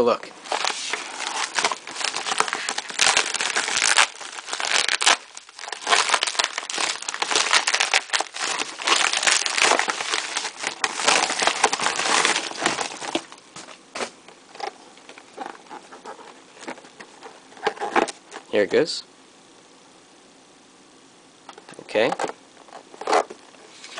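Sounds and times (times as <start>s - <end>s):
plastic mailer crinkling: 0.3s - 18.5s.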